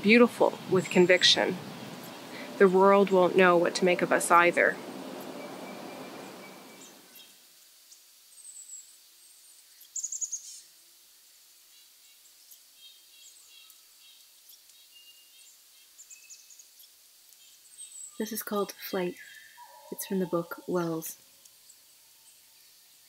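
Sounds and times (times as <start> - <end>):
songbird chirps: 0.0 - 10.8, 11.5 - 23.0
forest ambience: 0.0 - 23.0
bird trill: 4.3 - 7.3, 17.8 - 21.2.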